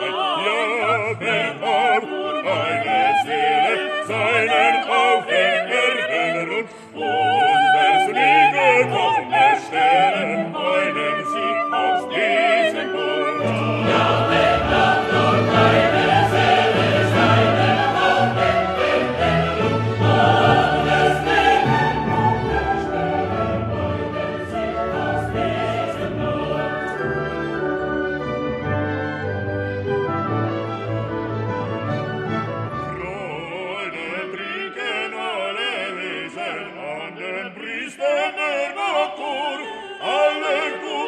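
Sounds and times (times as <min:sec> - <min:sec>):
operatic singing with vibrato: 0:00.0 - 0:28.6, 0:32.2 - 0:41.0
choir singing: 0:00.0 - 0:41.0
orchestra playing: 0:08.9 - 0:33.9.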